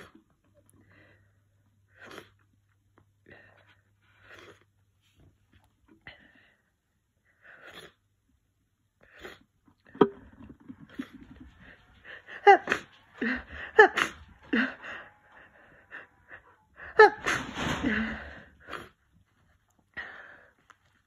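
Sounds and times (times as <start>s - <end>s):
person sneezing: 13.8s - 14.2s.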